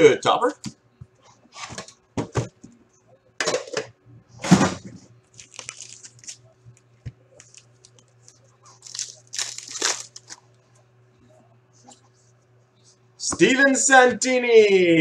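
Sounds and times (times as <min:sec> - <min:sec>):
foil wrappers crinkling: 0:05.2 - 0:06.4, 0:07.3 - 0:10.5.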